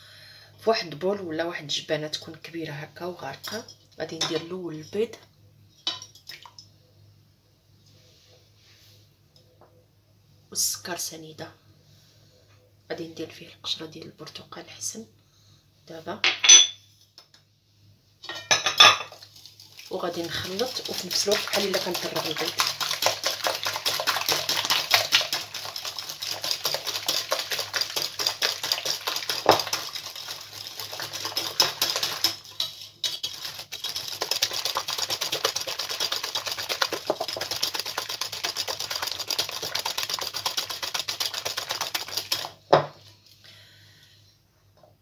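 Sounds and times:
whisk knocking: 19.8s - 42.6s.

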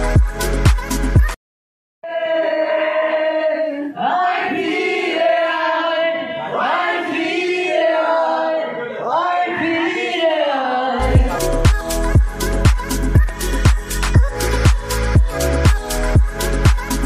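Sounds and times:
person singing: 9.2s - 17.0s.

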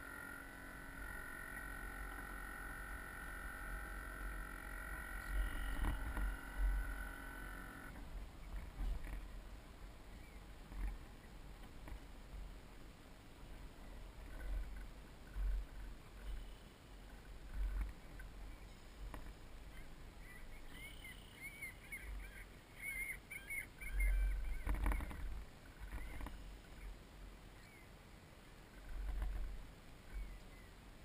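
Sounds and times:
wind: 0.0s - 31.0s
birds calling: 13.8s - 27.9s, 30.1s - 30.8s.

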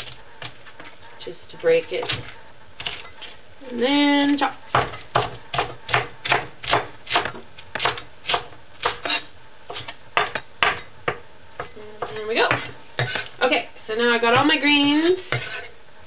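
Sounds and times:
knife chopping on wooden board: 4.7s - 13.3s.

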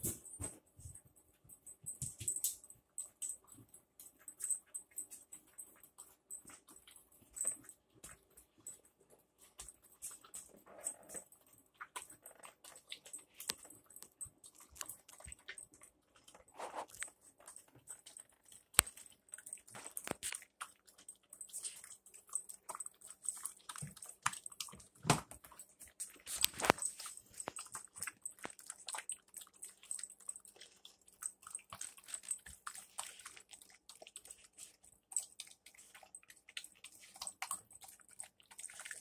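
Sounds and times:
kibble clicking against metal bowl: 1.6s - 39.0s
puppy crunching kibble: 1.8s - 39.0s.

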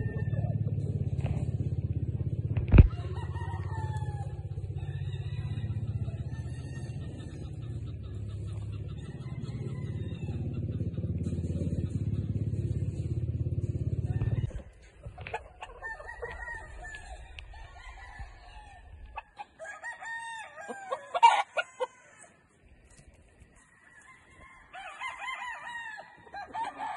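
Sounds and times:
rooster crowing: 0.0s - 0.8s, 2.8s - 7.6s, 8.8s - 10.7s, 13.9s - 22.5s, 23.6s - 26.9s
low steady rumble: 0.0s - 19.6s.

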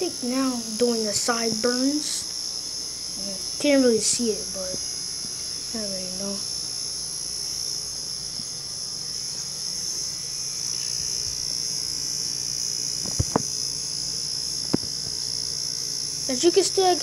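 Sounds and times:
electric hair clippers whining: 0.0s - 17.0s.

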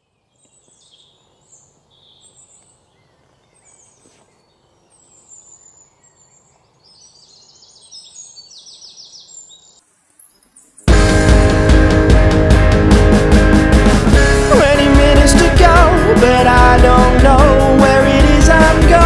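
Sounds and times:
bird trill: 0.0s - 10.9s
small birds chirping: 0.0s - 10.9s.

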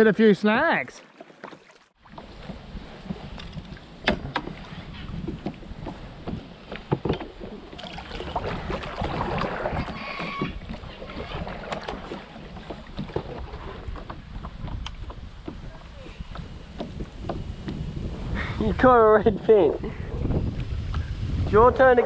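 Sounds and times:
water splashing off paddle: 1.0s - 18.4s
wind rumble on microphone: 2.0s - 22.0s
paddle knocking on plastic hull: 8.3s - 15.7s, 16.3s - 17.9s.

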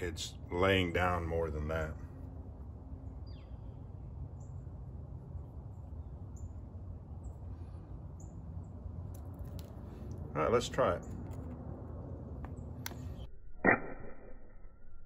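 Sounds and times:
high falling bird chirps: 3.0s - 9.1s.

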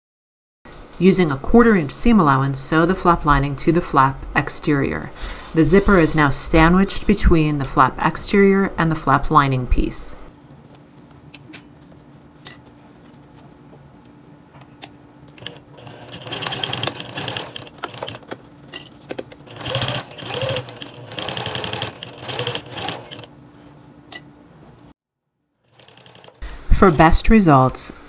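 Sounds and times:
sewing machine stitching: 15.4s - 18.4s, 19.4s - 23.3s, 25.7s - 26.4s.

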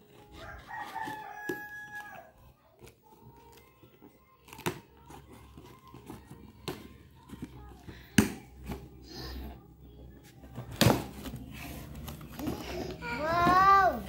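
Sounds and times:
rooster crowing: 0.3s - 2.4s.

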